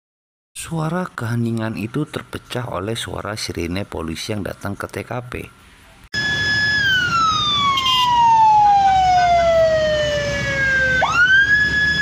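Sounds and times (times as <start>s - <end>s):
police siren wailing: 6.2s - 12.0s.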